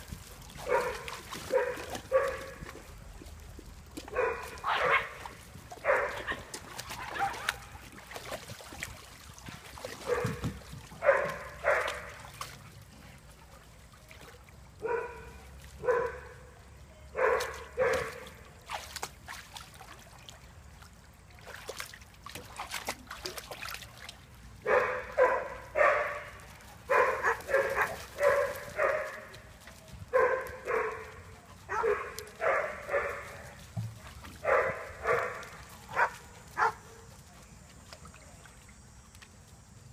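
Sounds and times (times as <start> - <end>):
dog barking: 0.6 - 2.6, 4.1 - 5.2, 5.8 - 6.4, 7.0 - 7.6, 10.0 - 10.4, 11.0 - 12.1, 14.8 - 16.4, 17.2 - 18.2, 24.6 - 26.3, 26.9 - 29.3, 30.1 - 31.1, 31.7 - 33.4, 34.4 - 36.8.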